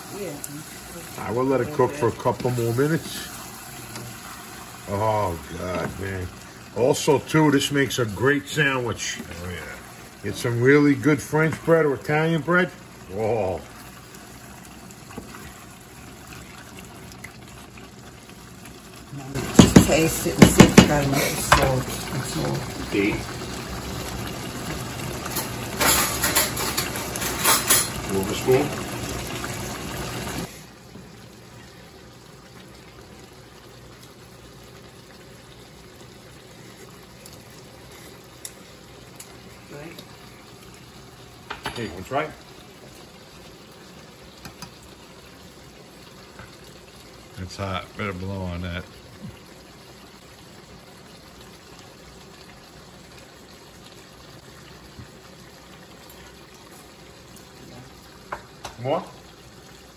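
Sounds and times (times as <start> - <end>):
sauce simmering and bubbling: 0.0 - 59.9.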